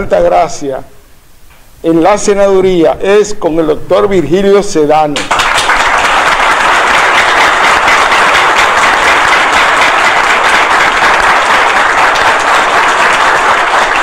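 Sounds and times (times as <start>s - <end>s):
audience applauding: 5.2s - 14.0s.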